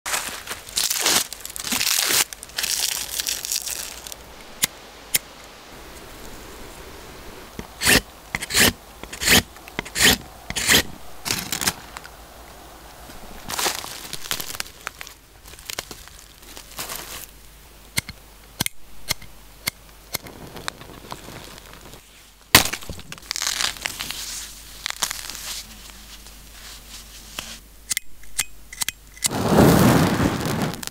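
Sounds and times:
plant tinder rustling: 0.1s - 4.6s, 5.8s - 17.4s, 20.2s - 27.6s.

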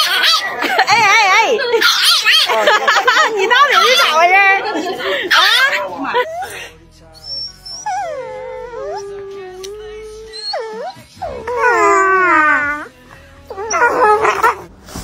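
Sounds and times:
dogs howling: 0.0s - 0.9s, 1.7s - 4.3s, 5.3s - 6.6s, 7.2s - 14.7s.

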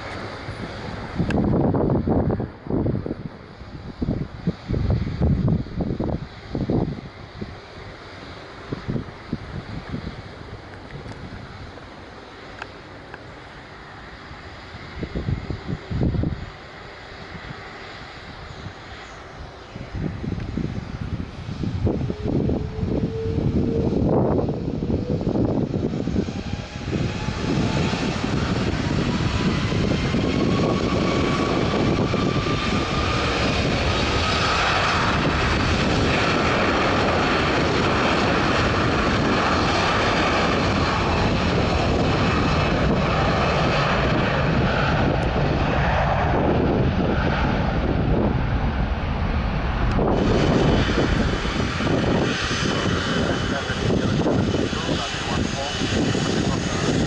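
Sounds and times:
jet engine whine rising: 0.0s - 57.0s
loud jet roar: 0.0s - 57.0s.

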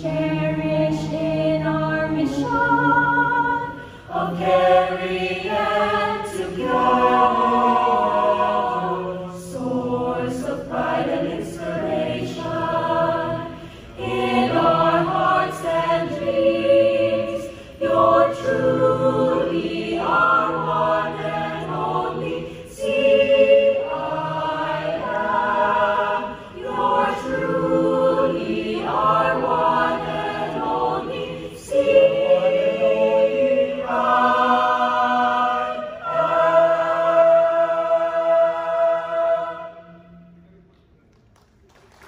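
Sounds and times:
choir singing a hymn: 0.0s - 40.5s.

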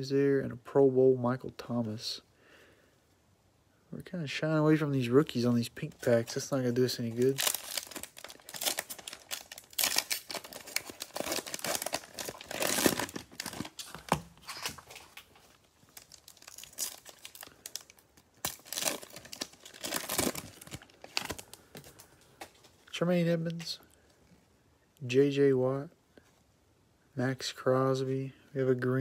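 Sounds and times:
plastic wrappers crinkling and tearing: 5.8s - 22.8s.

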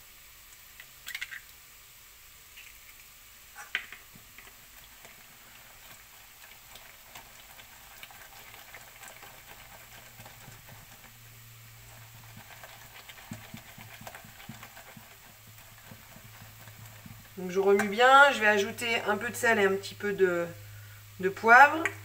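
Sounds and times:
whisk ticking against bowl: 5.8s - 18.7s.

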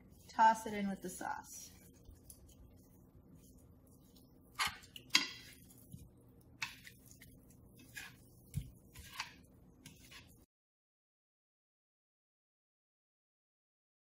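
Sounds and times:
spatula scraping a metal pan: 4.5s - 5.8s, 6.6s - 10.5s.

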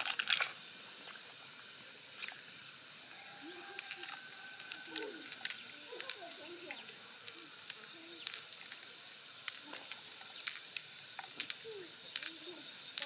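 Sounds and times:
pearls clicking together: 0.0s - 0.6s, 3.4s - 13.0s
high-pitched background hum: 0.0s - 13.0s.

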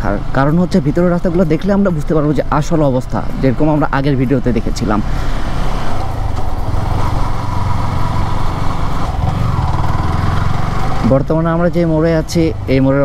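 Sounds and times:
motorcycle engine running: 4.8s - 12.8s.

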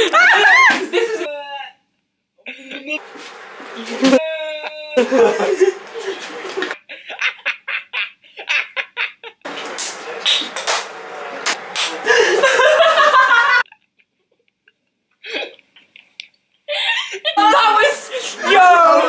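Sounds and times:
people laughing: 0.0s - 1.3s, 3.7s - 10.6s, 11.2s - 13.8s, 16.7s - 19.0s.

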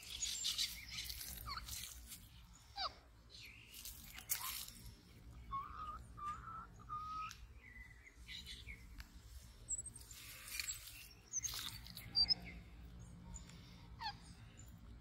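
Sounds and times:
scratchy crunching: 0.0s - 2.3s, 3.7s - 5.0s.

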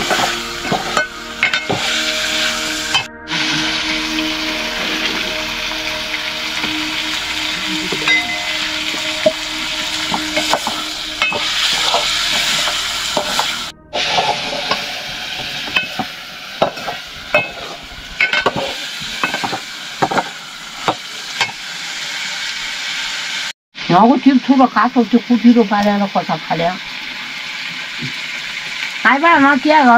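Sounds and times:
metal spoon scraping a pan: 0.0s - 3.1s, 7.9s - 21.6s
food sizzling in a pan: 0.0s - 29.9s.

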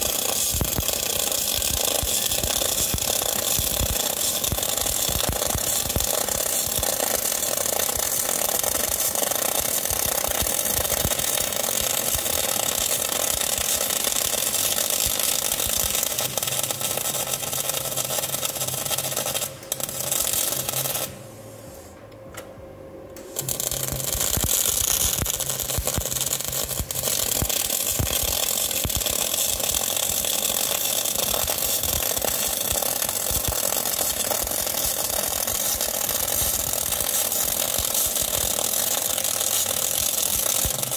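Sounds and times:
welding arc crackling: 0.0s - 21.3s, 23.2s - 40.9s.

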